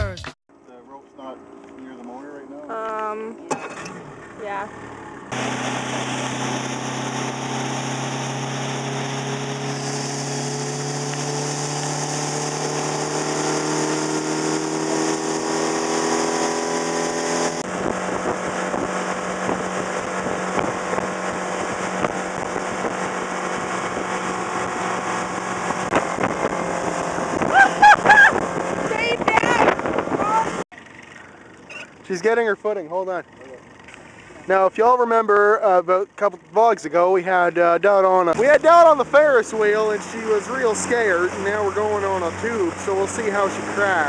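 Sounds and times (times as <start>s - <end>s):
motorboat engine: 0.0s - 44.0s
wind buffeting microphone: 17.6s - 30.6s.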